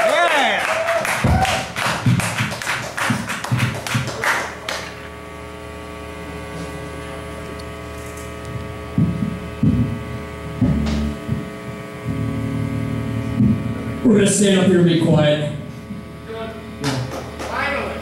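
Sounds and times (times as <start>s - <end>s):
sound system electrical hum: 0.0s - 18.0s
sharp taps or claps: 1.0s - 5.0s, 16.8s - 17.6s
low thuds: 8.9s - 14.1s.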